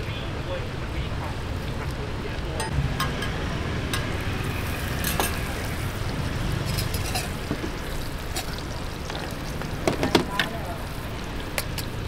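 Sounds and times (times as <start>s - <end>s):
bread sizzling on griddle: 4.2s - 12.0s.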